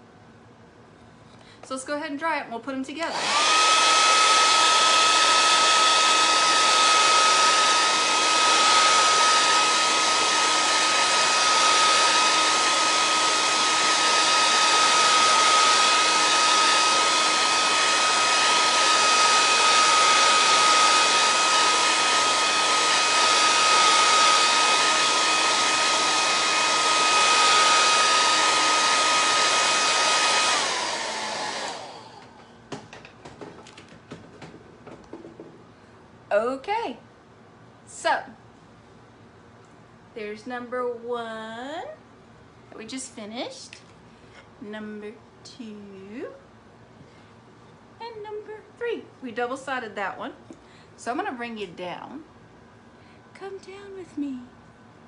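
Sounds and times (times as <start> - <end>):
blow dryer whine and rushing air: 3.0 - 35.5.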